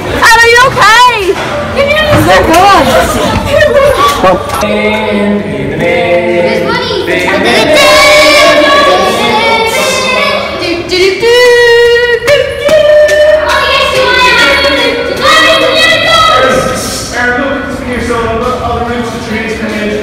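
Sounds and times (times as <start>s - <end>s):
choral singing: 4.5s - 20.0s.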